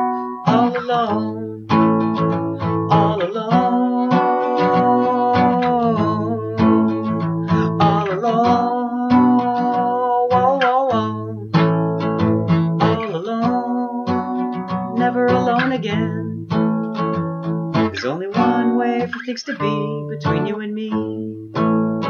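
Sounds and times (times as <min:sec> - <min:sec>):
acoustic guitar strumming: 0:00.0 - 0:22.0
man singing long notes: 0:00.4 - 0:01.7, 0:02.8 - 0:11.6, 0:12.8 - 0:16.5, 0:18.0 - 0:21.5.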